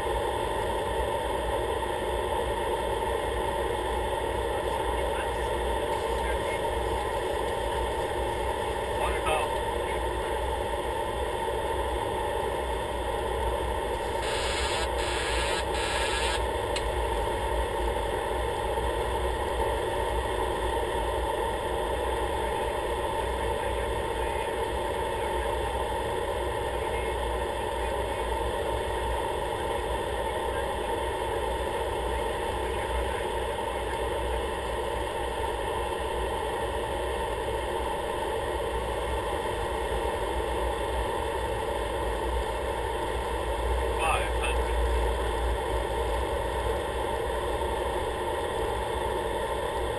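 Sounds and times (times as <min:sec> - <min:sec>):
aircraft engine and propeller drone: 0:00.0 - 0:49.9
burst of hiss: 0:14.1 - 0:16.4.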